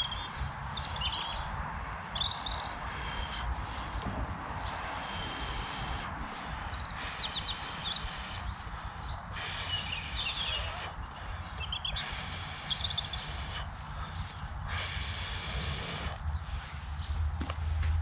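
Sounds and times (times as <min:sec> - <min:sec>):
small birds chirping: 0:00.0 - 0:18.0
breath blowing on tinder: 0:02.8 - 0:17.1.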